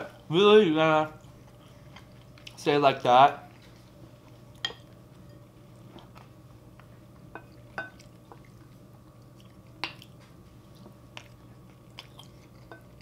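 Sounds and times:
faint eating sounds: 0.0 - 13.0.

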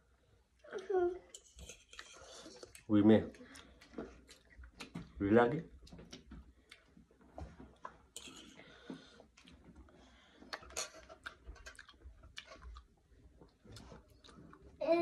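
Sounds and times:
person chewing: 1.4 - 5.0, 6.6 - 7.0, 7.7 - 14.8.

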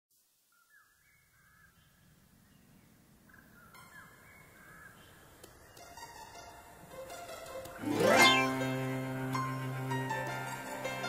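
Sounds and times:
faint bird calls: 0.5 - 5.9.

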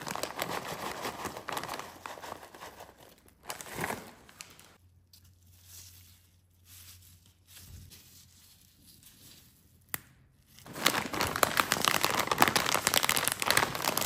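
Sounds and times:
plastic gloves crinkling: 0.0 - 14.0
snack bag crinkling: 10.6 - 14.0.

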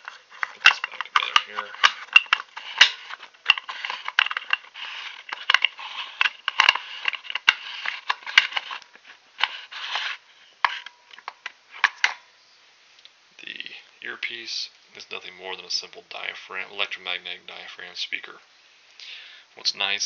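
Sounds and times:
hard parts scraping: 0.0 - 12.2
sharp clicks of plastic parts: 0.0 - 12.2.

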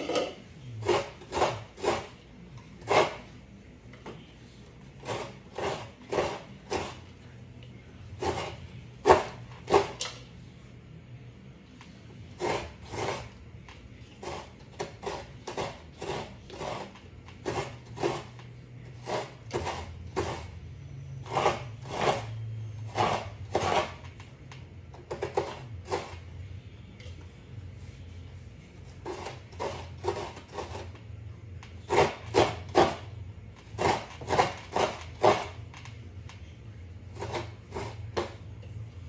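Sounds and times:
coconut rasping on grater blade: 0.8 - 2.2, 2.8 - 3.3, 5.0 - 7.1, 8.1 - 10.0, 12.4 - 13.4, 14.1 - 20.6, 21.2 - 24.2, 29.0 - 31.0, 31.8 - 35.6, 37.0 - 38.3.

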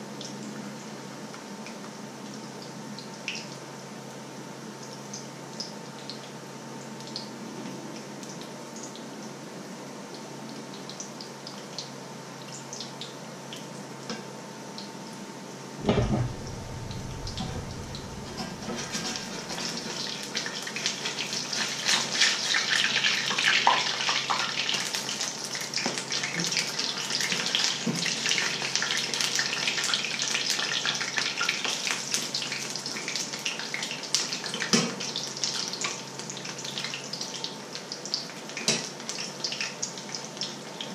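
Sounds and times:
oil sizzling and crackling: 10.0 - 40.9.

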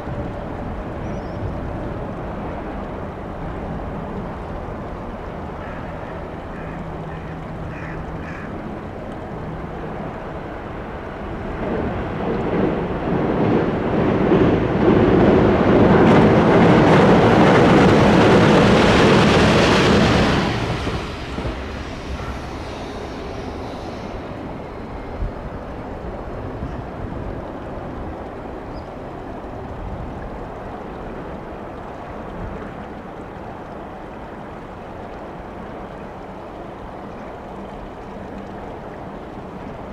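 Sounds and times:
train wheels rumbling over bridge: 7.3 - 28.5.

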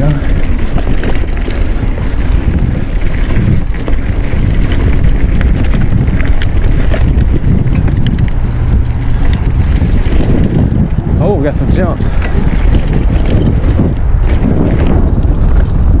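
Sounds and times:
bike clicks and rattles: 0.0 - 16.0
bike tyres rumbling on dirt: 0.0 - 16.0
wind buffeting microphone: 0.0 - 16.0.

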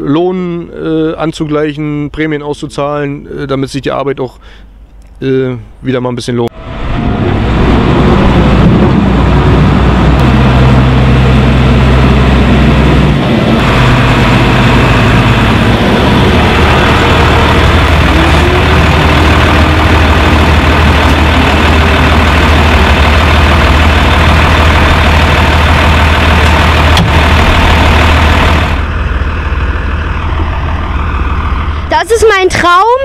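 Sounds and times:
click: 4.9 - 5.2
tractor diesel engine idling: 6.6 - 33.0.

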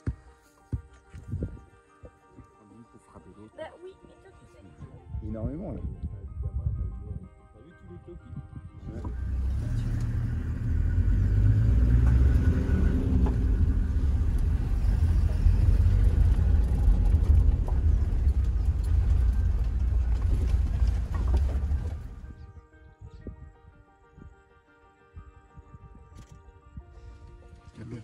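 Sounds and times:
low engine and tyre rumble: 8.8 - 22.6.

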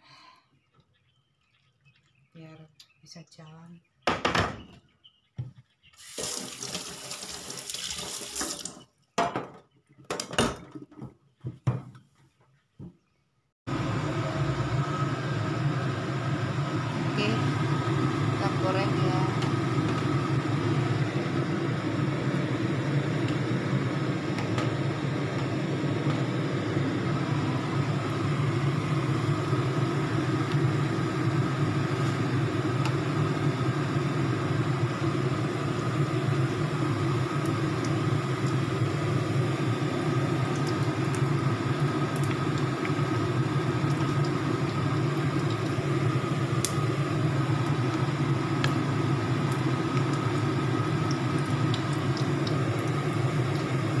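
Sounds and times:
low machine hum: 13.7 - 54.0
shrimp crackling in frying oil: 36.4 - 54.0.

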